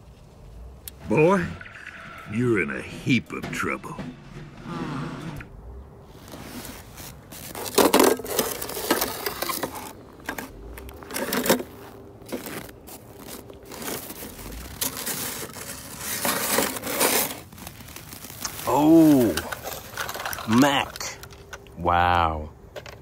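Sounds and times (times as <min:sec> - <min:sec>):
snow crunching and scraping: 0:06.0 - 0:21.2
glove rustling: 0:06.0 - 0:21.5.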